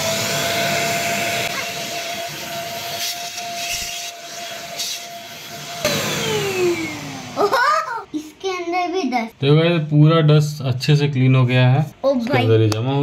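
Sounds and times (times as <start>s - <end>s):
handheld vacuum motor whining: 0.0s - 7.8s.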